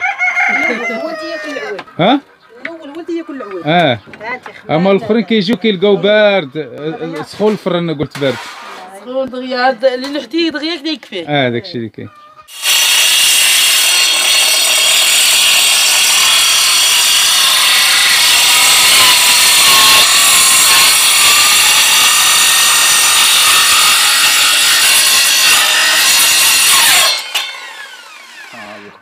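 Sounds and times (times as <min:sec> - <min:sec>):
power tool rasping: 0:12.5 - 0:28.9.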